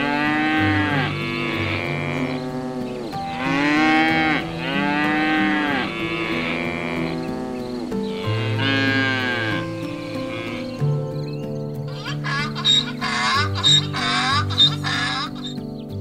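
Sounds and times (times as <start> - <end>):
cattle mooing: 0.0 - 10.8.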